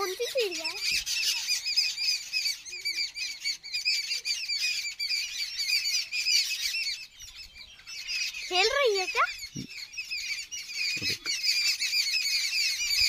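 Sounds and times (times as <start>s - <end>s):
sparrows chirping rapidly: 0.0s - 13.0s.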